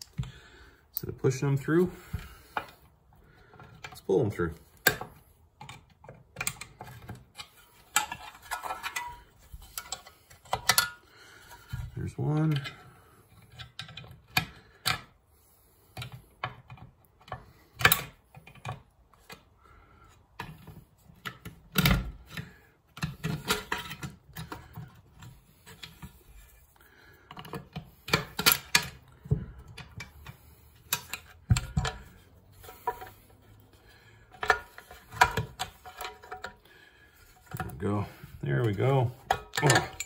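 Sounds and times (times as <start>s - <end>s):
hand tools clicking and tapping: 4.8s - 11.7s, 26.8s - 37.7s, 38.6s - 40.0s.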